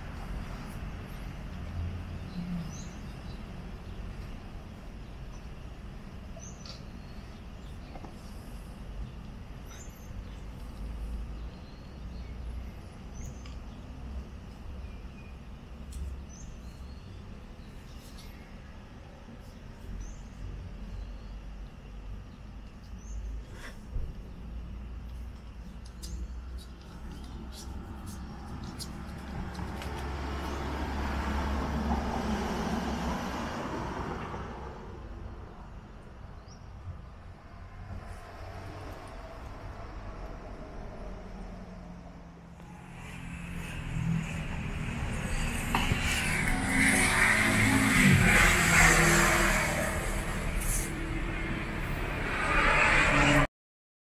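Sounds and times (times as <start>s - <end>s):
vehicle passing by: 27.7s - 35.4s, 37.8s - 53.5s
low outdoor rumble: 34.5s - 53.5s.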